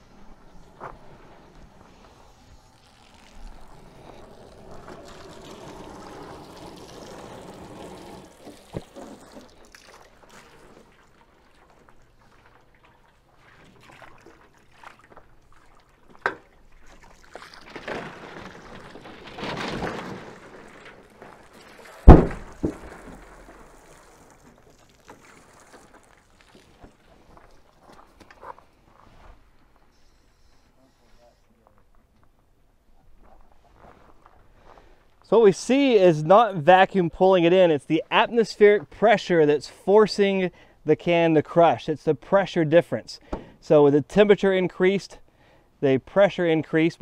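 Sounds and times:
hose water splashing on metal drum: 0:01.5 - 0:27.8
loud bang of drum caving in: 0:22.1 - 0:22.8.

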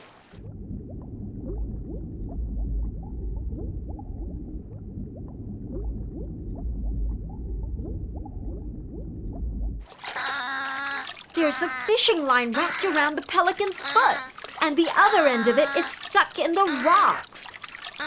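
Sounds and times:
muffled underwater rumble: 0:00.3 - 0:09.9
bubbles popping: 0:00.3 - 0:10.4, 0:11.0 - 0:18.0.

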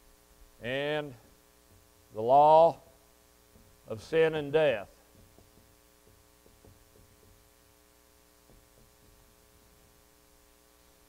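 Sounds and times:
low electrical hum: 0:00.0 - 0:11.0
marker writing on whiteboard: 0:05.0 - 0:07.7, 0:08.4 - 0:10.0.

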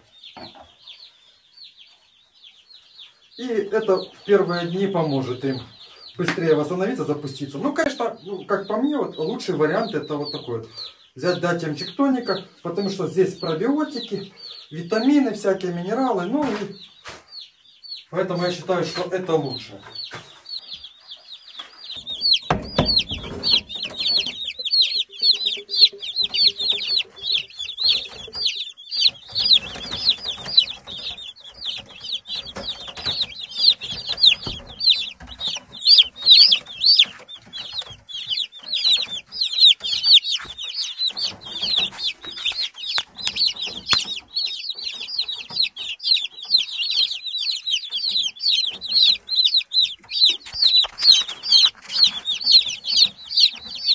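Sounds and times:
chicks peeping: 0:00.0 - 0:53.9
knock and rustle: 0:22.4 - 0:24.2.

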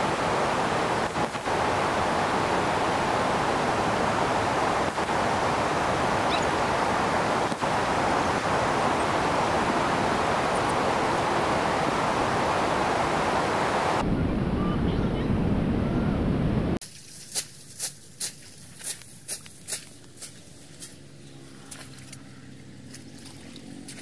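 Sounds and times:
floodwater rushing over weir: 0:00.0 - 0:14.0.

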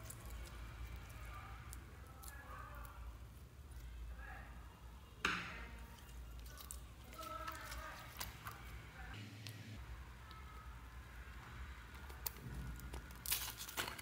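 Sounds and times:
slime squishing: 0:00.0 - 0:04.2, 0:05.6 - 0:08.8
sticky clicks and crackles: 0:11.9 - 0:14.0.

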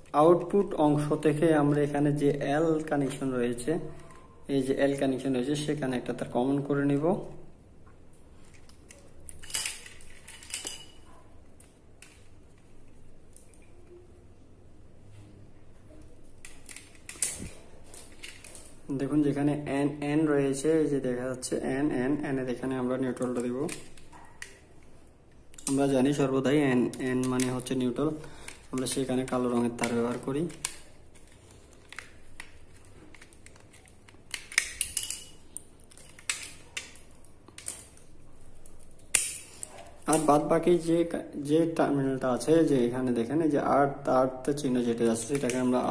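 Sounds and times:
screwdriver clicks and metallic clinks: 0:08.4 - 0:12.3, 0:16.4 - 0:18.7, 0:28.4 - 0:38.1, 0:45.1 - 0:45.9.

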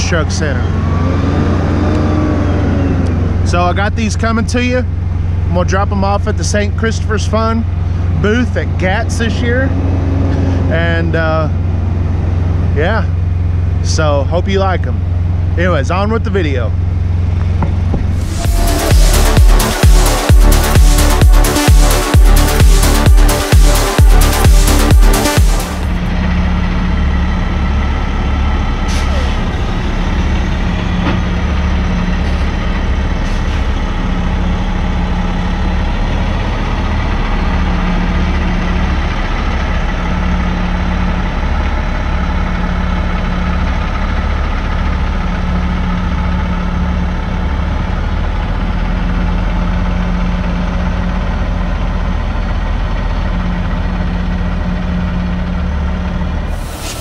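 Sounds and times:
truck diesel engine drone: 0:00.0 - 0:57.0.

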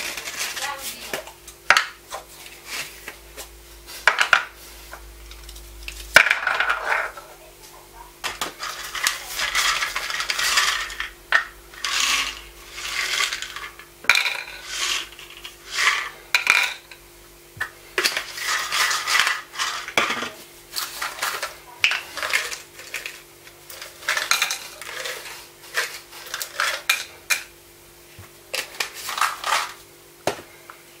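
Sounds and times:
plastic scraping and rattling: 0:18.0 - 0:27.1.

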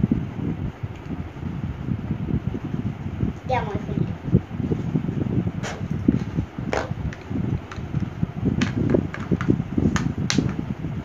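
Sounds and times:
electric fan rumble: 0:00.0 - 0:11.0
makeup items clicking and tapping: 0:08.6 - 0:10.6.

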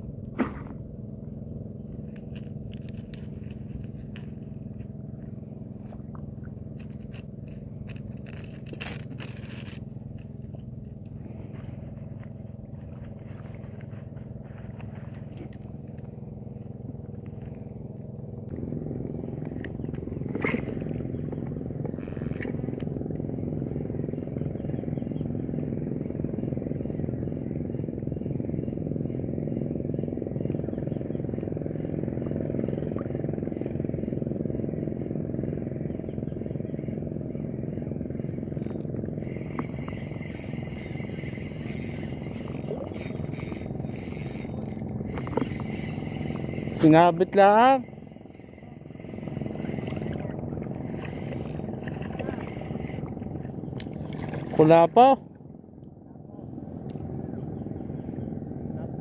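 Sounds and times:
motor hum: 0:00.0 - 0:59.0
fishing tackle clicking and scraping: 0:01.9 - 0:05.0, 0:06.6 - 0:11.2, 0:15.2 - 0:16.2, 0:38.5 - 0:46.9, 0:49.4 - 0:53.0.

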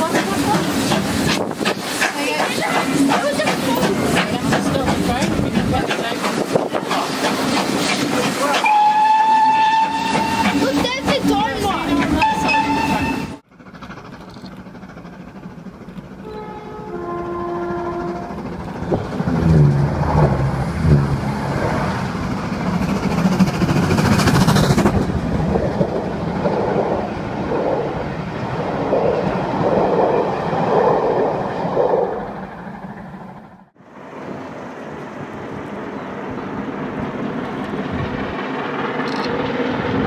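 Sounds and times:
wheels over rail joints: 0:00.0 - 0:33.7
train rumble: 0:00.0 - 0:40.0
steam whistle: 0:08.6 - 0:10.6, 0:12.2 - 0:13.4
train horn notes: 0:08.6 - 0:10.6, 0:12.2 - 0:13.4, 0:16.2 - 0:18.4.

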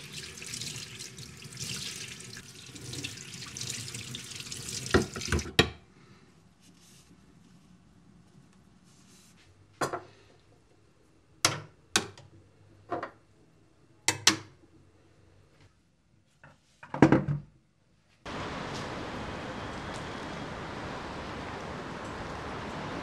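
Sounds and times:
rain hiss: 0:00.0 - 0:03.1, 0:18.3 - 0:23.0.

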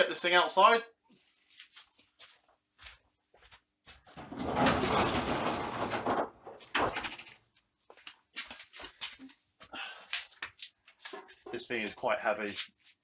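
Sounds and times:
roller shutter door rolling up: 0:04.2 - 0:07.3.

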